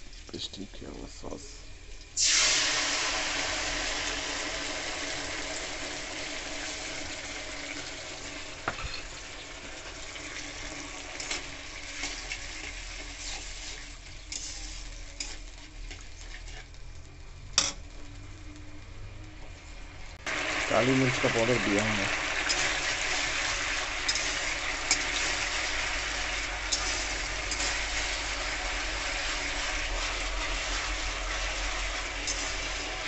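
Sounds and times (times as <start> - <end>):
gravy sizzling in a pan: 0.0 - 33.0
spatula scraping a pan: 11.1 - 16.8, 22.4 - 33.0.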